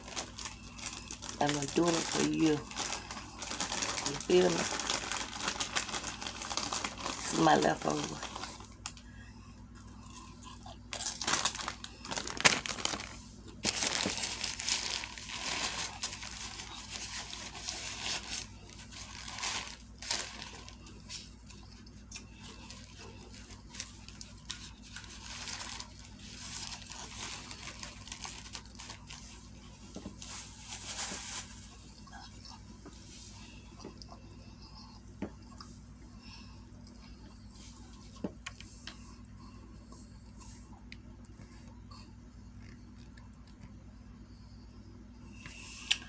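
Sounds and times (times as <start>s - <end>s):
paper wrapper crinkling: 0.0s - 9.0s, 10.1s - 31.9s.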